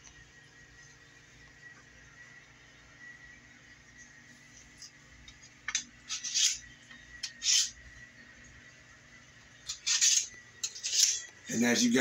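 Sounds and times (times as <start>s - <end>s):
knife scraping on sharpener: 6.1s - 7.8s, 9.7s - 11.3s.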